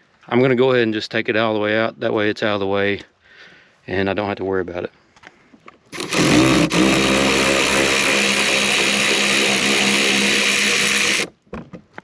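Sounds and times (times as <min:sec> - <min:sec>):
electric ratchet running: 0:05.9 - 0:11.3.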